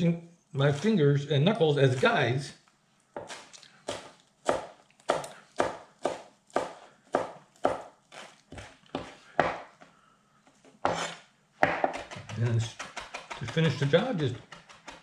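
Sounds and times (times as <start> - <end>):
knife chopping on cutting board: 3.2 - 9.8, 10.8 - 15.0.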